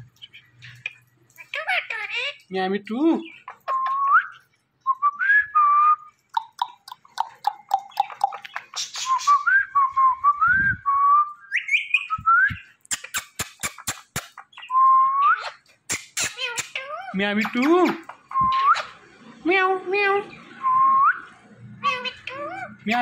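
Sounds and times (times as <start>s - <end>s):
parrot clicks: 6.3s - 8.6s, 12.9s - 14.4s
parrot whistling: 18.3s - 19.0s.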